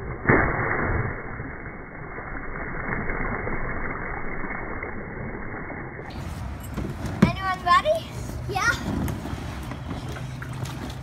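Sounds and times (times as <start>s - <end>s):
water splashing in paddling pool: 9.1s - 11.0s.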